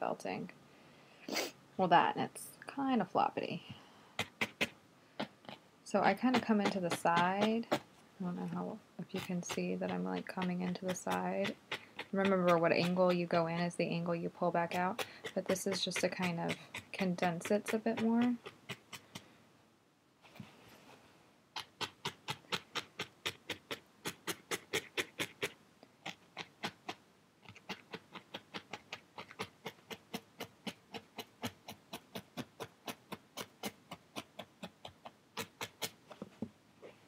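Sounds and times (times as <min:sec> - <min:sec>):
felting needle ticking: 0:04.2 - 0:07.8, 0:08.4 - 0:19.3, 0:21.6 - 0:36.0.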